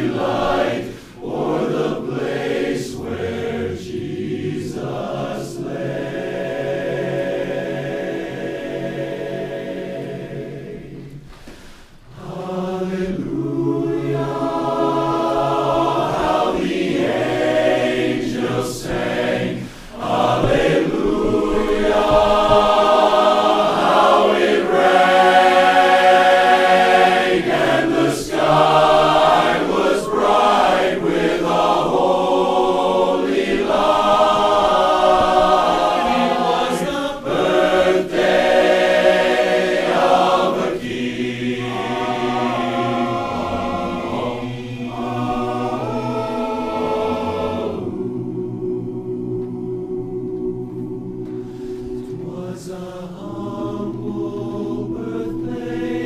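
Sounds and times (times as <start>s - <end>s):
men's chorus singing a cappella: 0.0s - 56.0s
singers breathing: 0.8s - 1.3s, 11.2s - 12.2s, 19.5s - 20.2s, 51.2s - 52.2s.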